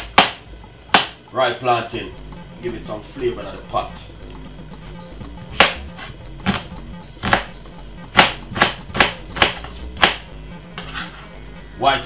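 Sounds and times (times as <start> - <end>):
knife chopping on cutting board: 0.0 - 1.2, 5.5 - 11.2
faint background music: 0.0 - 12.0.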